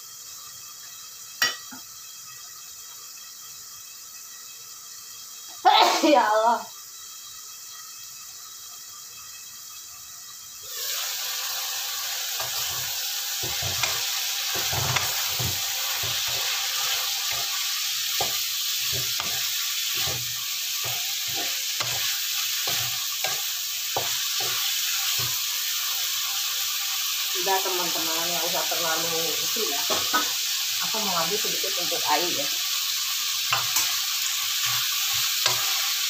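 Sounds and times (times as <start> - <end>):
stir-fry sizzling in a wok: 0.0 - 36.0
spatula scraping a wok: 10.7 - 29.1, 31.7 - 36.0.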